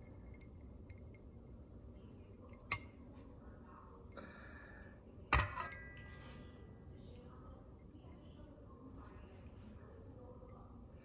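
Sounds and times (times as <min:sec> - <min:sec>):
metal ladle clinking on dishes: 0:05.3 - 0:06.2
ringing clatter of dishes: 0:05.3 - 0:06.3.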